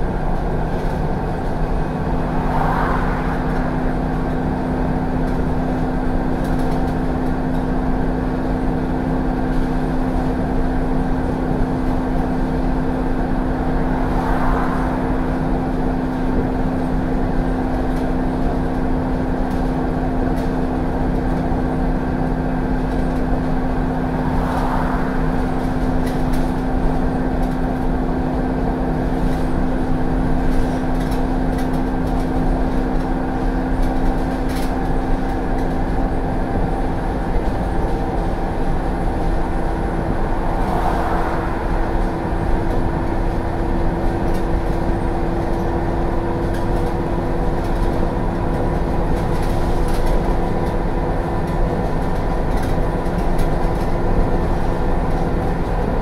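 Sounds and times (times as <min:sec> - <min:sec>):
bus engine droning: 0:00.0 - 0:56.0.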